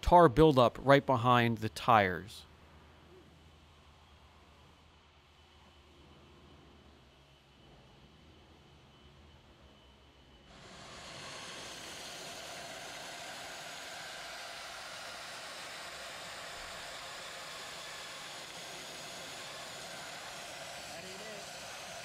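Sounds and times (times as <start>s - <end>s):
dry ice blasting gun hissing: 10.5s - 22.0s.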